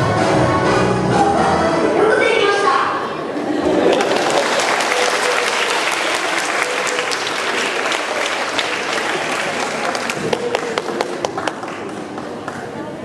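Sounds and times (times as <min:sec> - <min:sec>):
audience applauding: 0:03.6 - 0:12.9.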